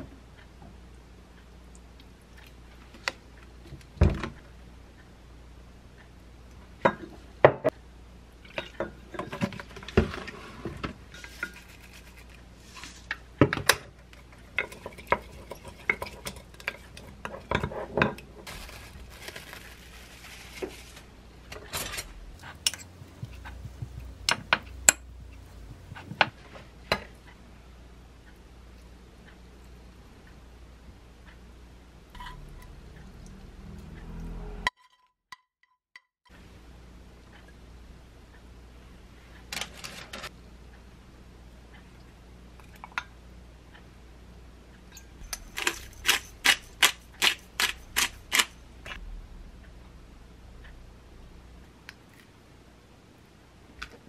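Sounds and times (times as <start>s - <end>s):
wooden spoon scraping glass mug: 45.2s - 48.6s
utensils knocking and clinking: 45.2s - 49.0s.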